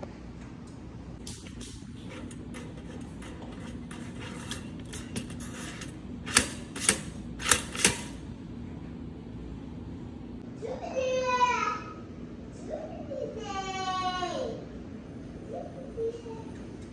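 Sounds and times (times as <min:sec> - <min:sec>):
sharp toaster clicks: 0:04.4 - 0:08.3.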